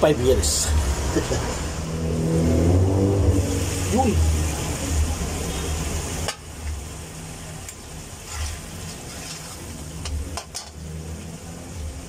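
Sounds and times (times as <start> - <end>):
sauce sizzling in a wok: 3.4 - 12.0
metal spoon scraping and tapping pan: 8.3 - 10.8.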